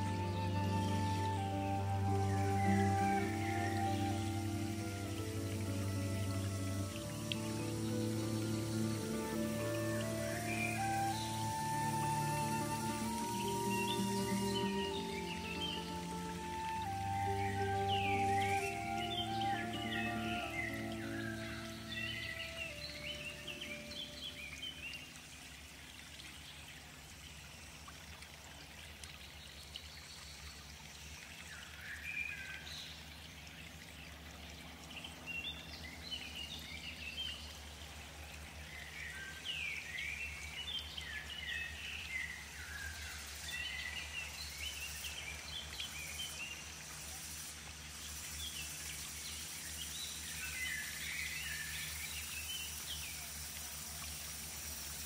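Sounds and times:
birds chirping: 0:00.0 - 0:25.0.

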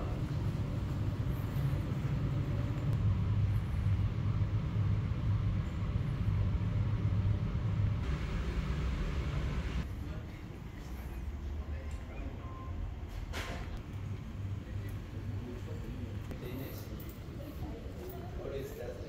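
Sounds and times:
road traffic rumble: 0:00.0 - 0:11.4.

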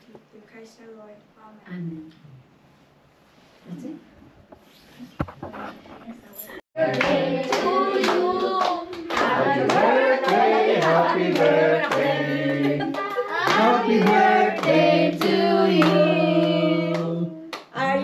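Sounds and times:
group of people singing: 0:06.8 - 0:18.0
people clapping along: 0:06.8 - 0:18.0.

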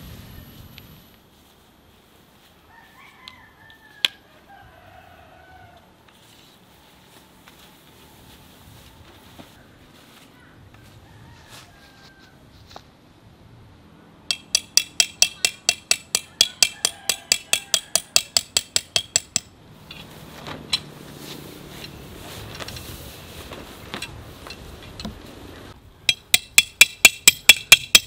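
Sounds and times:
hammer striking tent peg: 0:14.3 - 0:19.6, 0:26.1 - 0:28.0.

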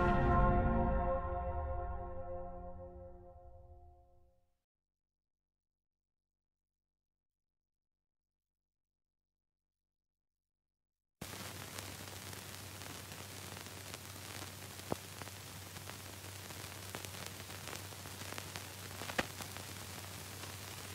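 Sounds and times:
clicks and crackles: 0:11.2 - 0:20.9
film soundtrack hiss: 0:11.2 - 0:20.9.

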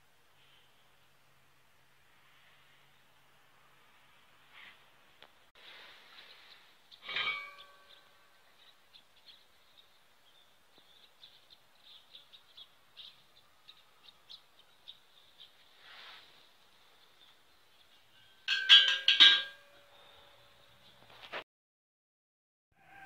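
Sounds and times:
metallic clink: 0:18.2 - 0:20.5.

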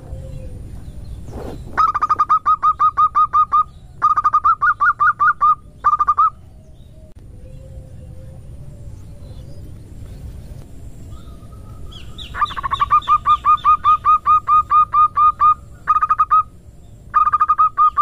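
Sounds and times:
dove calling staccato notes: 0:01.8 - 0:06.4, 0:11.2 - 0:18.0.

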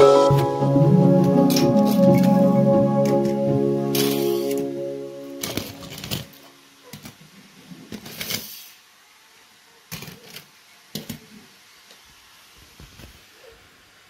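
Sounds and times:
toy cars clattering together: 0:07.9 - 0:08.7, 0:09.9 - 0:11.3.

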